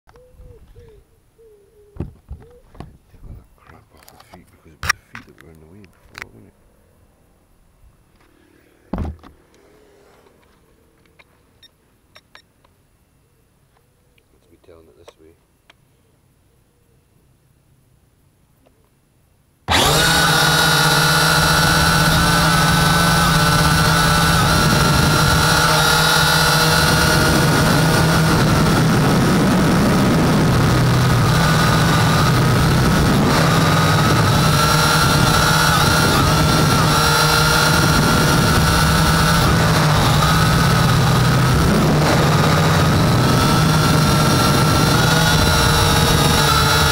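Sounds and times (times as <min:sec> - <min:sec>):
loud thump with handling noise: 0:08.9 - 0:09.4
quadcopter propellers buzzing: 0:19.7 - 0:46.9.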